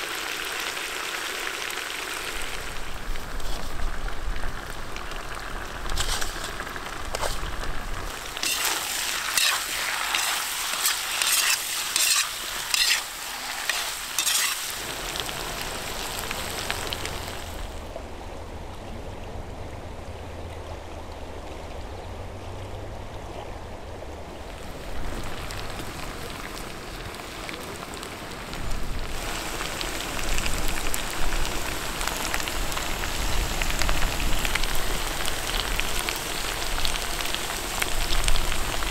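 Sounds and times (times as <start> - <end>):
food sizzling in a pot: 8.0 - 17.6, 29.1 - 38.9
utensil scraping while stirring: 8.4 - 14.8.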